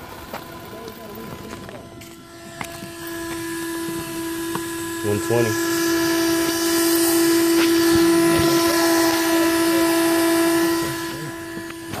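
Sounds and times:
electric rc car whine: 0.0s - 12.0s.

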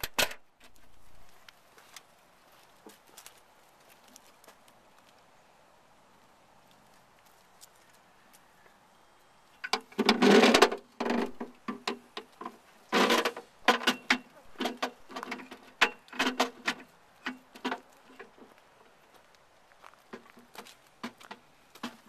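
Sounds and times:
horns scraping metal box: 9.6s - 17.9s.

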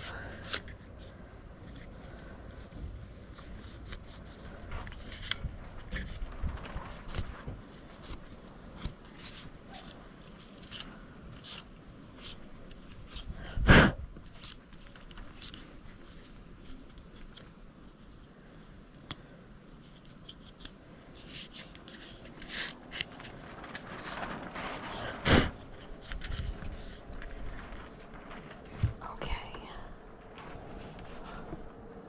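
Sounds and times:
cloth rubbing: 21.2s - 29.0s, 30.2s - 32.0s.

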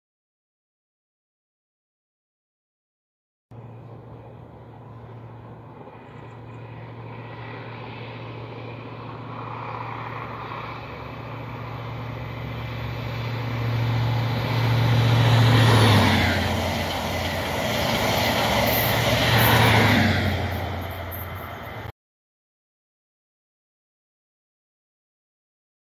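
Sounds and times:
diesel train engine drone: 3.5s - 21.9s
train wheel and rail noise: 3.6s - 21.9s.

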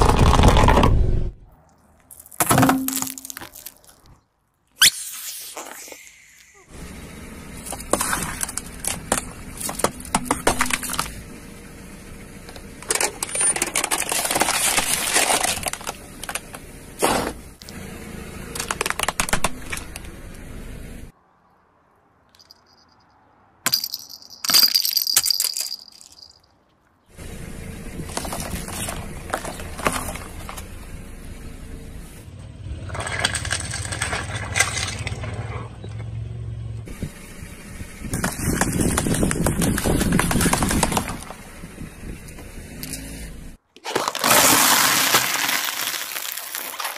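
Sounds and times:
tyre crushing aluminium cans: 2.1s - 3.9s, 12.8s - 17.4s, 18.5s - 20.0s, 43.7s - 46.9s
car engine humming: 6.6s - 21.1s, 25.7s - 43.6s.

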